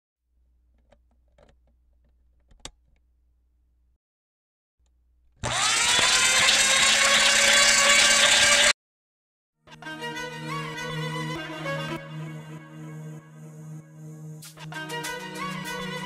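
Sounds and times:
grinder motor grinding: 0:05.4 - 0:08.8.

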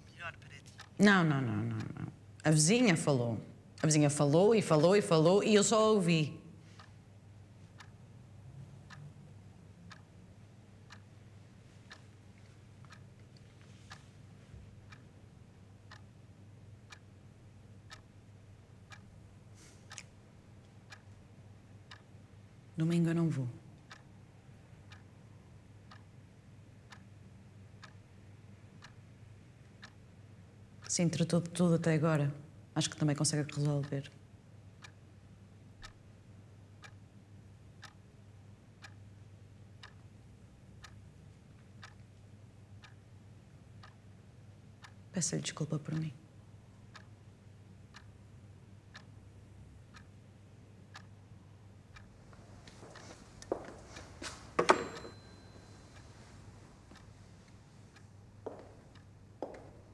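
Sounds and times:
clock ticking: 0:00.0 - 0:59.9
low room hum: 0:00.0 - 0:59.9.

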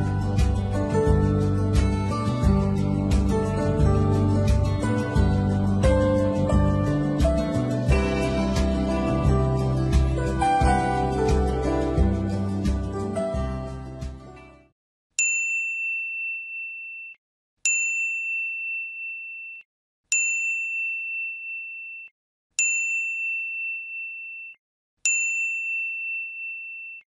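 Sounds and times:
soft music: 0:00.0 - 0:14.7
notification bell ding: 0:15.2 - 0:27.0.

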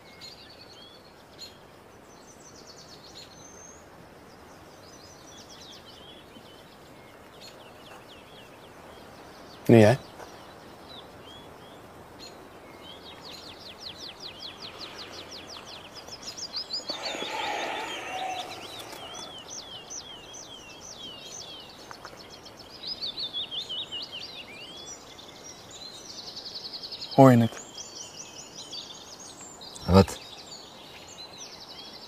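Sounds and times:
birds chirping and trilling: 0:00.0 - 0:32.0
outdoor background hiss: 0:00.0 - 0:32.0.

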